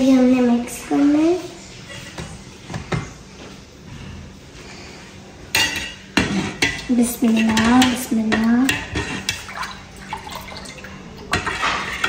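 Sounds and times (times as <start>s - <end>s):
metal ladle scraping a pot: 8.7s - 9.8s.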